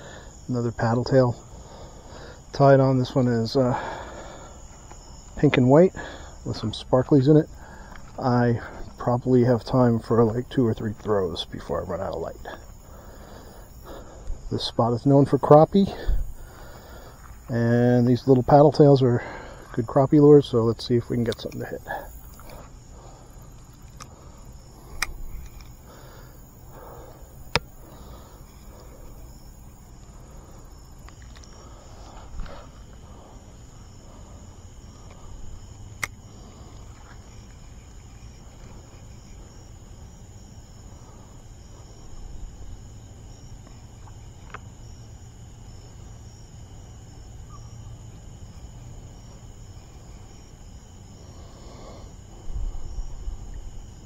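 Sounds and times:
crickets and insects trilling: 0.0s - 54.0s
pulsing insect chirp: 0.0s - 54.0s
sharp clicks: 24.9s - 25.8s, 36.0s - 36.2s.

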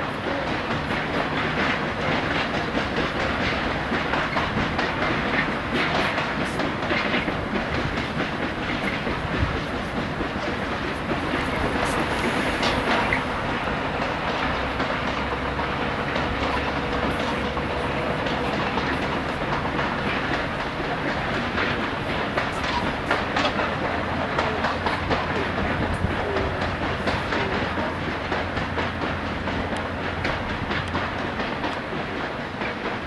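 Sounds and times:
train wheels clicking on rails: 0.0s - 33.0s.

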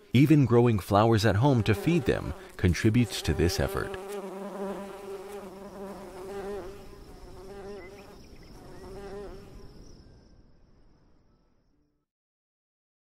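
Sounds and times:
bees buzzing: 0.0s - 9.8s.

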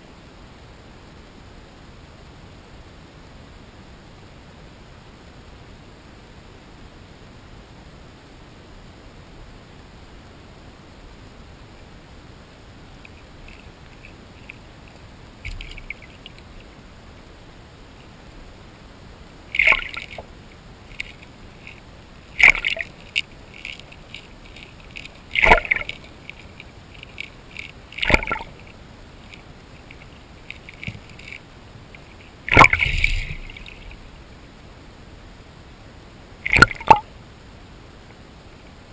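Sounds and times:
light ticks: 13.0s - 16.7s, 22.4s - 34.0s
underwater splashes: 15.4s - 16.6s, 19.5s - 34.3s, 36.4s - 37.1s.

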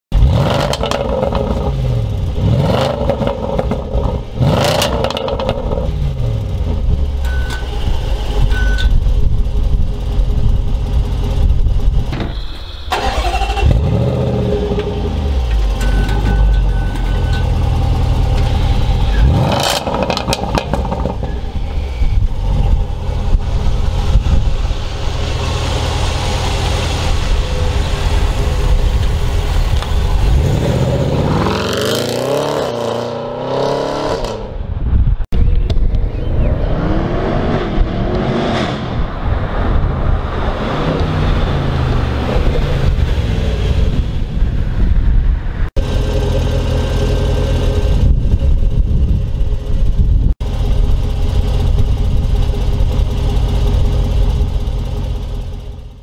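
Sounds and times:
car engine revving: 0.1s - 12.1s, 12.8s - 16.6s, 17.4s - 34.7s, 35.7s - 44.3s.

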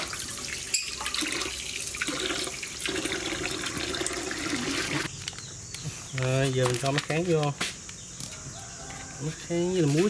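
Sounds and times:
water pouring and splashing: 0.0s - 5.1s.

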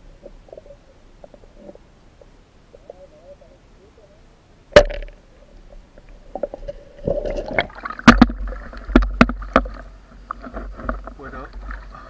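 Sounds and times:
water splashing and gurgling: 6.2s - 12.0s.

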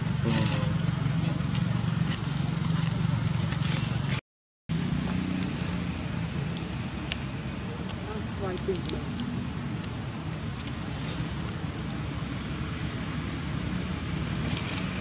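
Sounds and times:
engine humming: 0.0s - 15.0s
small clicks and crackles: 7.9s - 12.1s.

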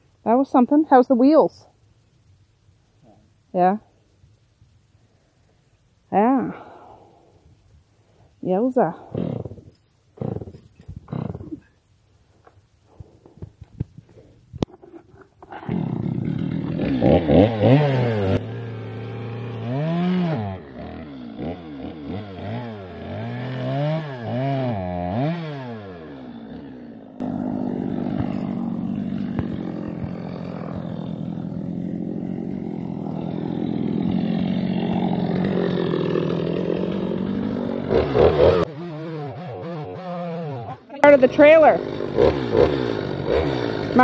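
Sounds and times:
chainsaw revving and cutting: 15.5s - 44.0s.

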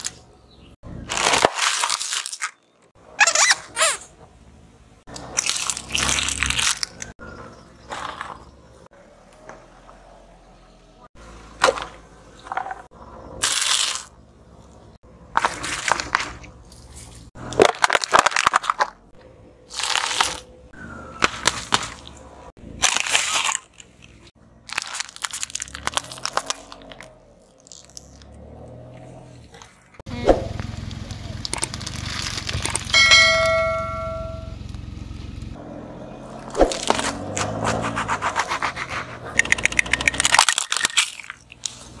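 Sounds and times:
tyre crushing candy on asphalt: 0.9s - 4.0s, 5.1s - 7.2s, 11.5s - 14.2s, 15.3s - 20.5s, 21.2s - 28.4s, 30.5s - 33.0s, 36.5s - 42.0s.

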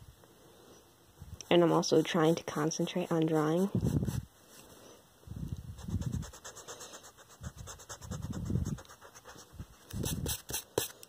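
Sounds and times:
eraser rubbing on paper: 1.5s - 4.2s, 5.8s - 11.0s.

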